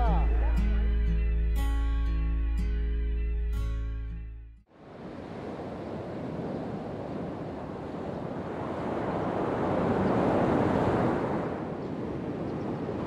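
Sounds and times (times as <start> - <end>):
ocean surf washing on beach: 4.7 - 13.0.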